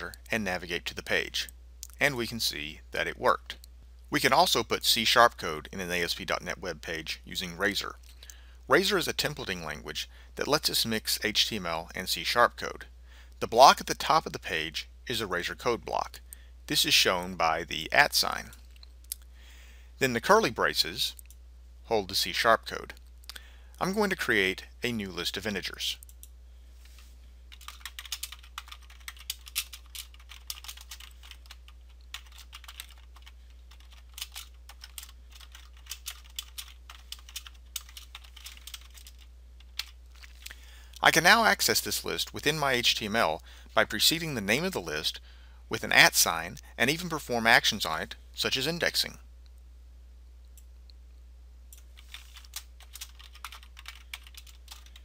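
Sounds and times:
steady low hum: 0.0s - 55.0s
keyboard typing: 27.5s - 40.4s, 51.7s - 55.0s.

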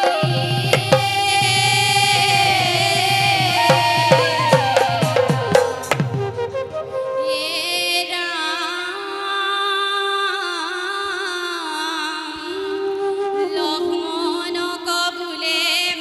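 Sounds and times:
women singing devotional song: 0.0s - 6.2s, 13.6s - 16.0s.

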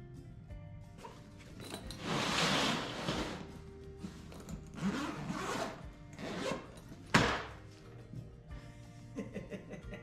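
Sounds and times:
faint background music: 0.0s - 10.0s
zipper being pulled open: 1.0s - 3.5s, 4.2s - 7.2s
bag panel thumping on bench: 7.1s - 7.6s.

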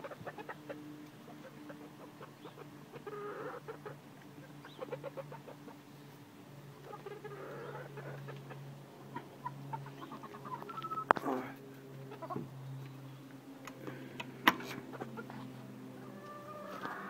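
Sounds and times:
hens clucking softly: 0.0s - 12.5s, 14.6s - 17.0s.

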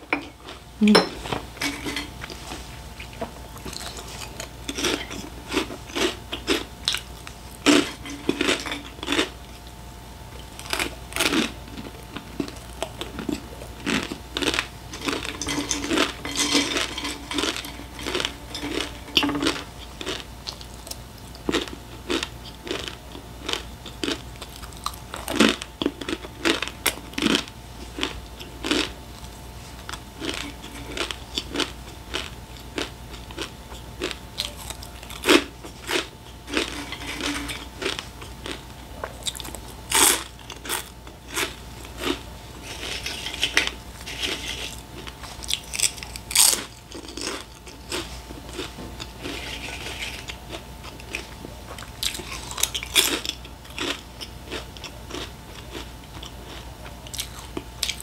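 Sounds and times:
crunching and chewing crisps: 2.1s - 58.0s.

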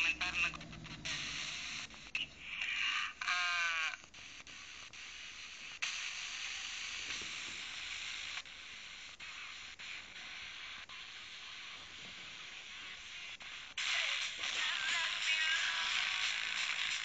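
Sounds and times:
radio static hiss: 0.0s - 17.0s.

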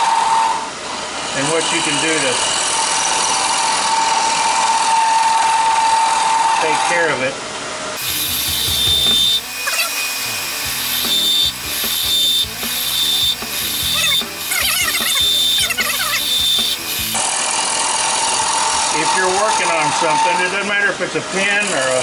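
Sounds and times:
wood lathe high whine: 0.0s - 22.0s
chisel cutting wood: 8.0s - 20.4s.

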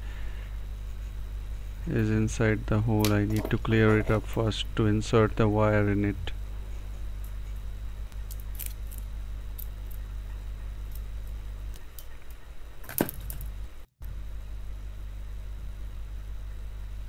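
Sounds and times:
steady low hum: 0.0s - 17.0s
hands clicking and tapping wire: 7.2s - 13.5s.

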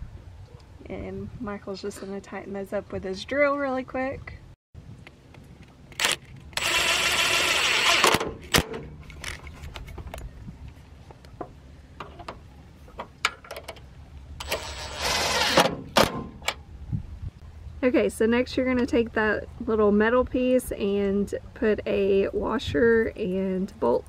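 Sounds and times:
power drill tightening bolts: 6.0s - 8.3s, 14.4s - 15.7s.

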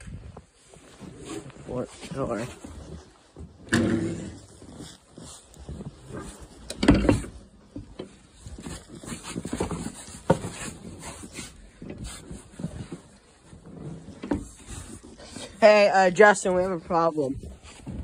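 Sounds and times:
door scraping on snow: 3.6s - 6.4s.

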